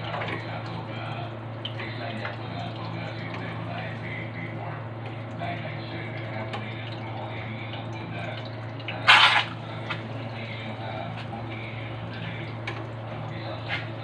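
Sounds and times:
steady low hum: 0.0s - 14.0s
egg sizzling in oil: 9.1s - 9.6s.

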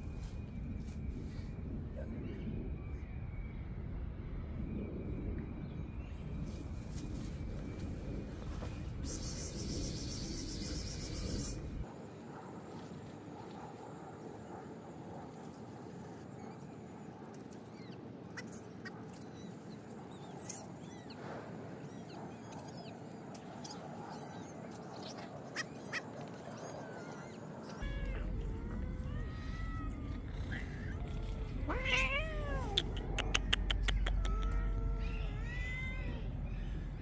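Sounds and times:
rustling noise: 6.4s - 9.0s
cats meowing: 27.8s - 36.7s.

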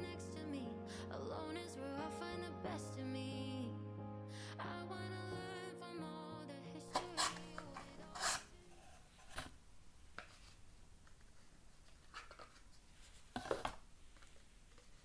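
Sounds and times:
cardboard box and shoes rustling: 11.2s - 15.0s.

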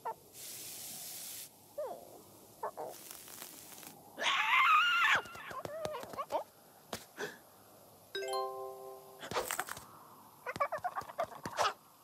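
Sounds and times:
cartoon hiss: 0.3s - 2.1s, 2.7s - 4.3s.

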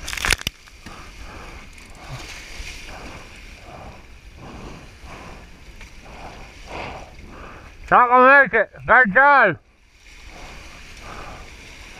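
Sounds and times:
wind buffeting microphone: 0.8s - 7.9s, 9.8s - 11.9s.

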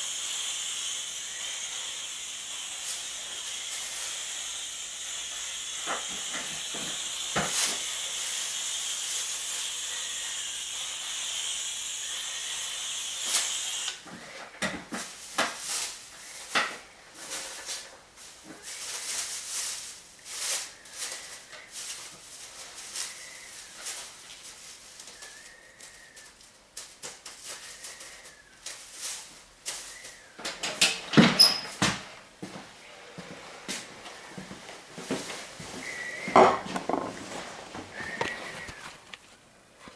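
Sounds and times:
aerosol spray can hissing: 0.0s - 14.1s, 15.0s - 26.4s
plastic sheeting crinkling: 14.9s - 30.2s, 36.7s - 39.9s.

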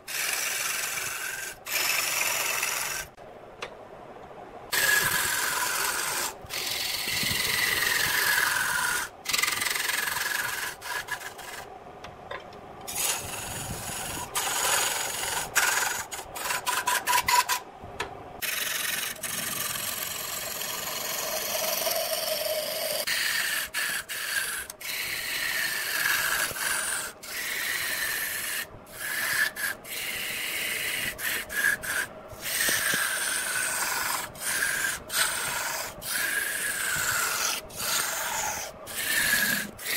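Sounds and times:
lathe tool cutting wood: 0.1s - 3.1s, 4.8s - 11.6s, 12.9s - 17.5s, 18.5s - 39.9s.

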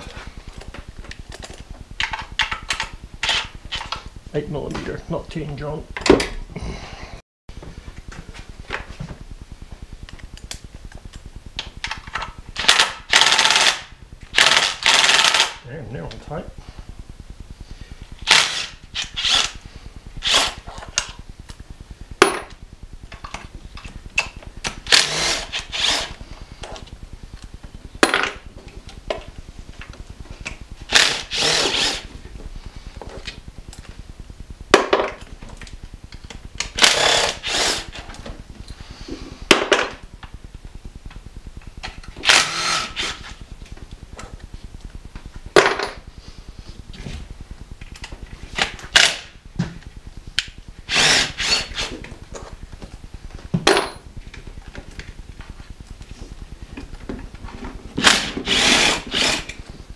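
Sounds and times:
power tool spinning a socket: 1.4s - 4.0s, 11.8s - 15.6s, 18.2s - 19.6s, 20.2s - 21.2s, 24.6s - 26.8s, 30.9s - 32.1s, 36.6s - 38.2s, 41.9s - 43.4s, 50.4s - 52.0s, 58.0s - 59.6s.

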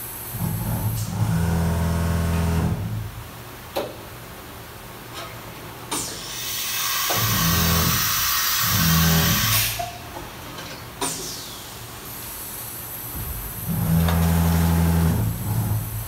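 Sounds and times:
coolant spraying hiss: 5.9s - 9.8s
loud air hiss: 5.9s - 9.8s
machine motors humming: 13.1s - 16.0s.

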